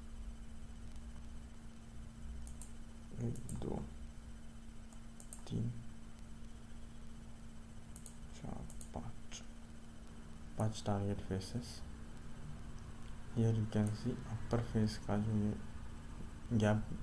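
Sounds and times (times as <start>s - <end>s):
low steady hum: 0.0s - 17.0s
computer mouse clicking: 2.4s - 3.8s, 4.9s - 5.6s, 7.9s - 9.0s.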